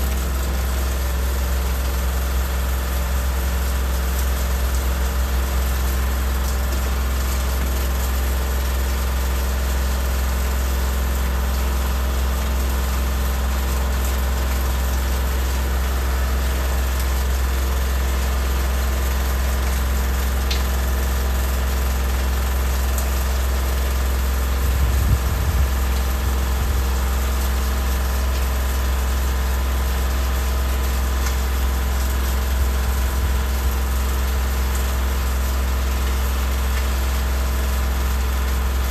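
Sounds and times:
low rumble: 24.6s - 25.8s.

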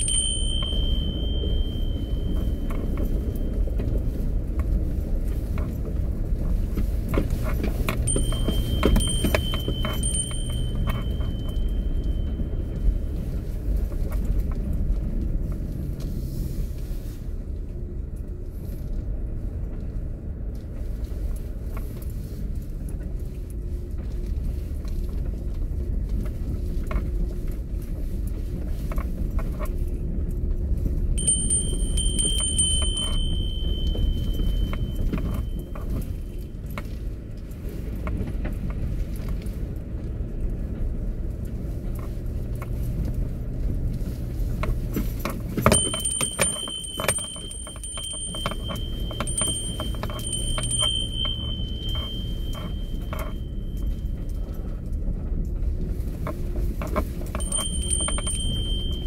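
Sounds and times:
thin high tone: 0.0s - 3.9s, 8.0s - 13.4s, 31.2s - 36.5s, 45.6s - 54.5s, 57.4s - 59.0s
car driving on rough road: 0.0s - 59.0s
knocks and rattles: 44.8s - 54.0s.

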